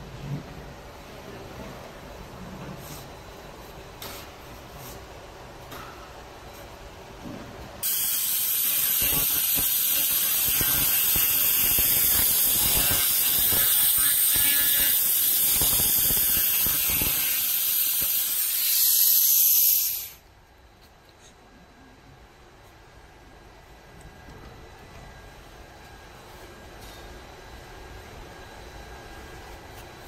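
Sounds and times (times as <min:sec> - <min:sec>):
laser cleaner crackling hiss: 0:07.8 - 0:20.2.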